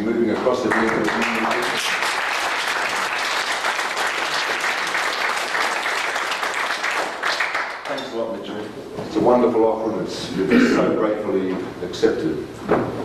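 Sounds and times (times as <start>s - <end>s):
audience applauding: 0.2s - 8.2s.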